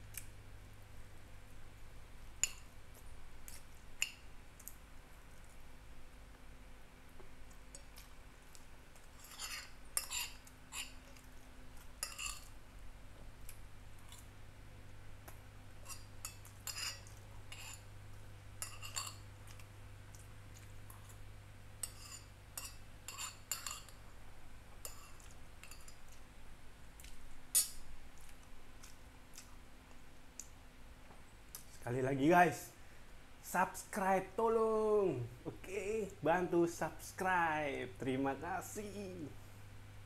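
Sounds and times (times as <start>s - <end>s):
metal spoon scraping glass bowl: 9.2s - 11.0s, 12.0s - 12.5s, 16.6s - 17.8s, 18.6s - 19.2s, 21.8s - 23.9s.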